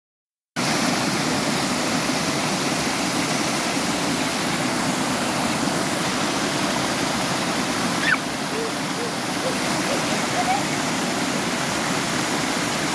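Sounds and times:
water rushing over rocks: 0:00.6 - 0:12.9.

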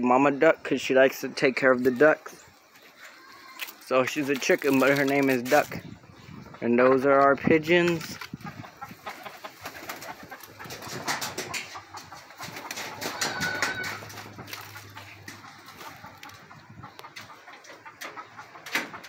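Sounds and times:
pigeons cooing: 0:08.3 - 0:19.0.

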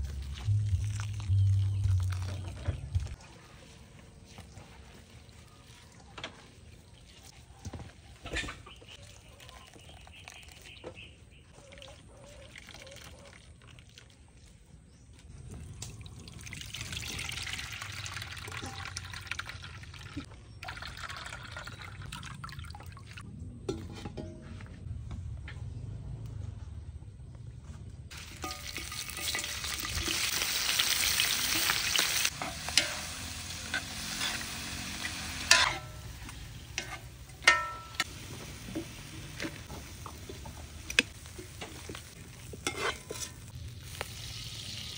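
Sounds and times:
liquid pouring: 0:00.0 - 0:03.2, 0:15.6 - 0:23.2.

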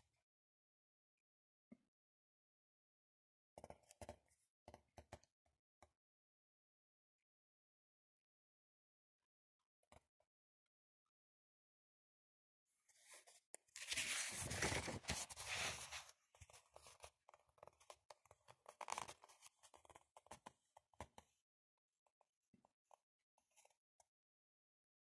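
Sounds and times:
book pages turning: 0:13.8 - 0:17.1, 0:18.6 - 0:19.5
paper crackles and clicks: 0:13.8 - 0:20.4.

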